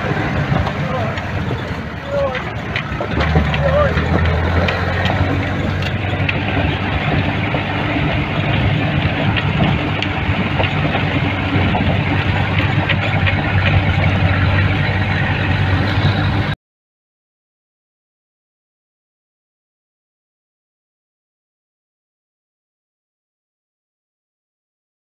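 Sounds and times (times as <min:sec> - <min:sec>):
vehicle body knocks and rattles: 0:00.0 - 0:16.5
vehicle engine humming: 0:00.0 - 0:16.6.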